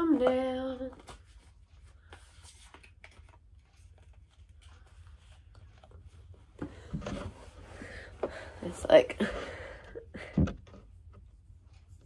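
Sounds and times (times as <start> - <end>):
low room hum: 0.0 - 12.0
rustling and knocks: 5.6 - 8.4.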